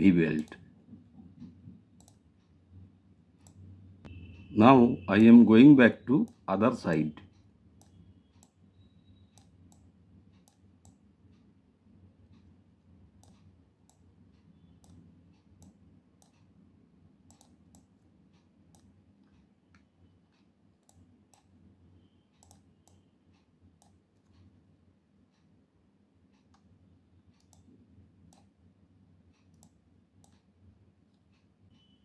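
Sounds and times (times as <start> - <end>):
faint low hum: 0.0 - 32.0
computer mouse clicks: 1.2 - 2.6, 3.4 - 3.7, 7.3 - 11.5, 13.2 - 16.5, 17.2 - 21.6, 22.3 - 24.6, 26.3 - 28.6, 29.3 - 30.5.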